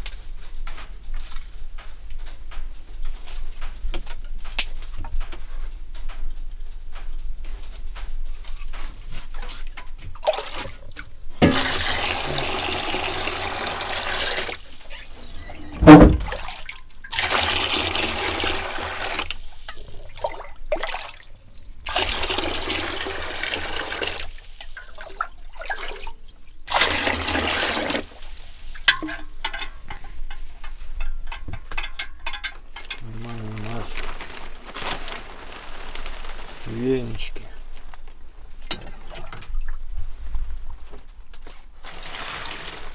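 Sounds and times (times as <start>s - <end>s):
tap water running into basin: 10.0s - 33.0s
loud thud: 15.6s - 16.4s.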